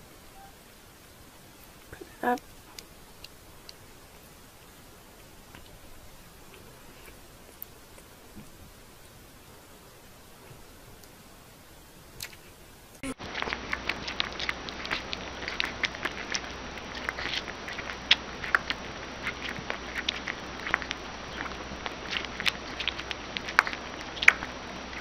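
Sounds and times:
faint steady hiss: 0.0s - 25.0s
animal suckling at a bottle: 13.2s - 25.0s.

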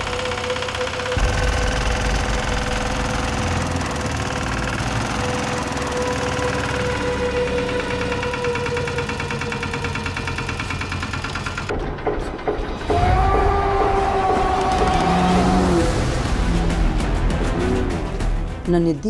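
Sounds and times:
small tiller engine running: 0.0s - 11.7s.

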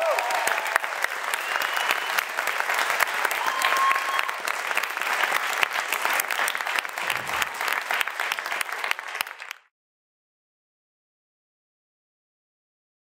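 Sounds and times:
crowd applause: 0.0s - 9.7s.

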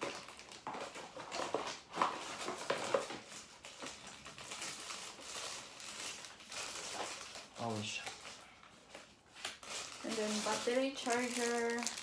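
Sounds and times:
packaging rustling and crinkling: 0.0s - 12.0s.

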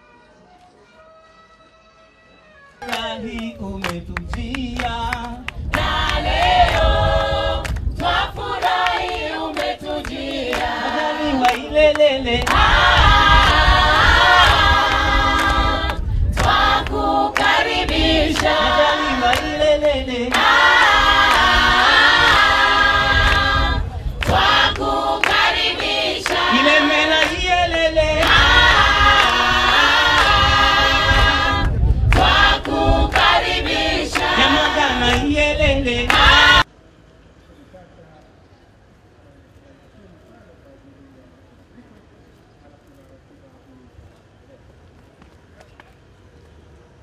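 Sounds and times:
hand claps: 2.8s - 6.9s, 7.6s - 10.8s, 11.4s - 12.7s, 14.4s - 18.6s, 19.3s - 19.6s, 24.2s - 26.6s, 31.6s - 33.4s, 34.1s - 34.5s, 36.1s - 36.3s
mixed choir singing: 4.8s - 36.7s.

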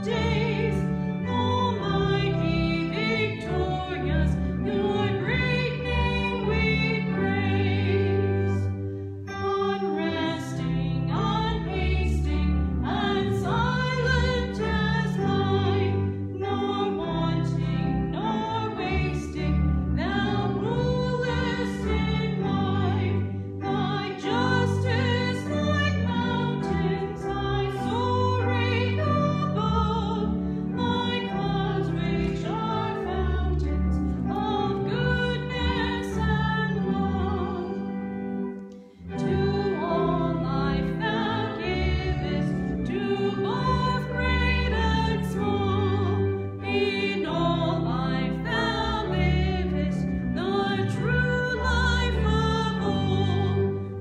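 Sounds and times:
chordal accompaniment: 0.0s - 54.0s
woman singing a hymn: 0.0s - 54.0s.

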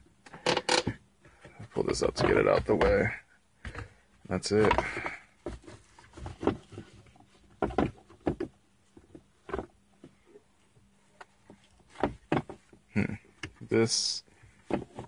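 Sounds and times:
plastic clicks and knocks: 7.6s - 10.2s.

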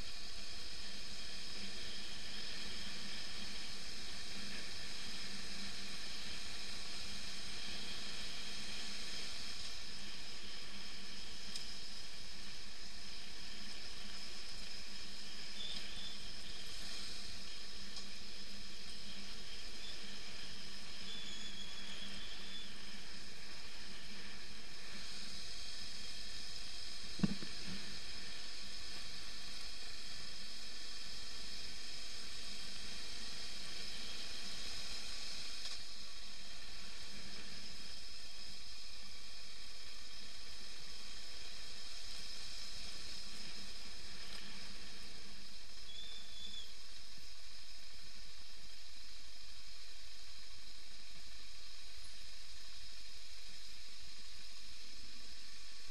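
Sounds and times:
motorcycle riding on dirt hiss: 0.0s - 55.9s
sharp knock: 27.2s - 27.5s.

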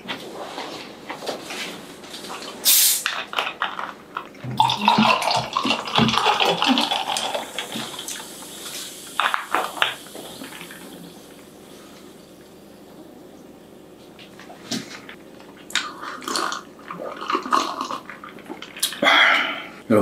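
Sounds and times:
plastic bottle opening hiss: 2.6s - 3.2s
soda pouring over ice: 4.6s - 11.1s, 16.2s - 18.8s.

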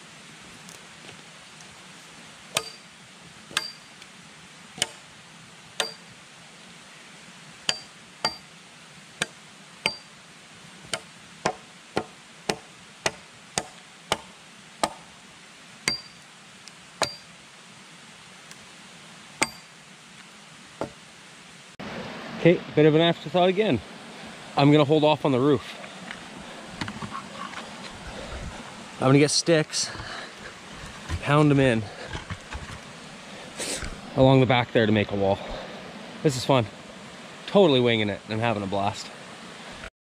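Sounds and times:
hatchet chopping wood: 2.5s - 2.9s, 3.5s - 3.8s, 4.8s - 5.0s, 5.8s - 6.1s, 7.7s - 8.5s, 9.2s - 10.1s, 10.9s - 15.1s, 15.8s - 16.2s, 17.0s - 17.3s, 19.4s - 19.7s, 20.8s - 21.0s.

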